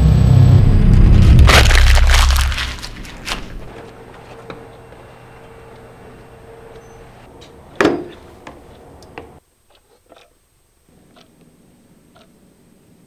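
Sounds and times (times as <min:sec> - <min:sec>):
steady hum: 0:00.0 - 0:09.4.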